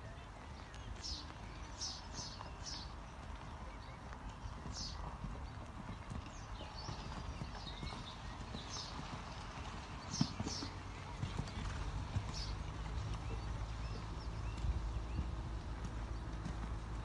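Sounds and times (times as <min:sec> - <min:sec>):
hoofbeats cantering on sand: 0:00.0 - 0:17.0.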